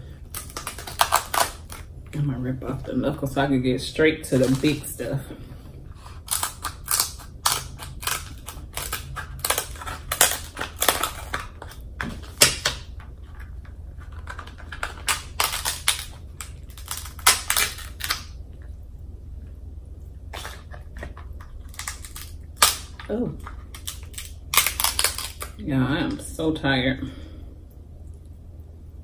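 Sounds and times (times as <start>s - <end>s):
crab shell cracking: 0.1s - 2.0s, 6.0s - 18.7s, 20.2s - 25.6s.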